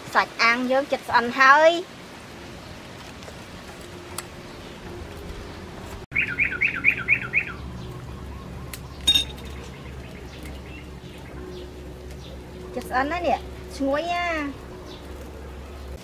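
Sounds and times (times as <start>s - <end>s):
songbird chirping: 2.1s - 16.0s.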